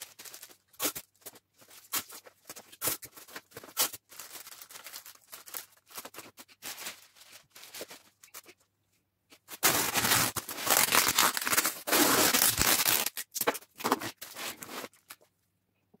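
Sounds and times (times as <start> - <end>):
cellophane crinkling: 0.0 - 8.6, 9.4 - 15.3.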